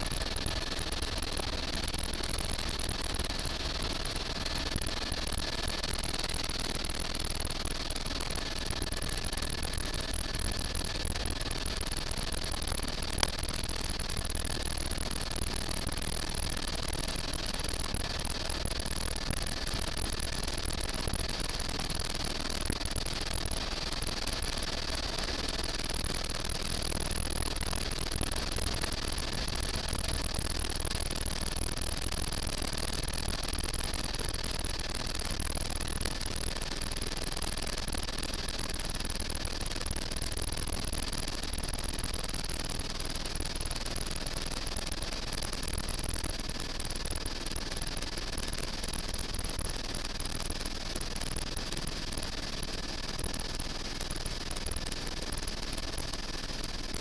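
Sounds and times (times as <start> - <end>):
helicopter cabin drone: 4.3 - 20.0.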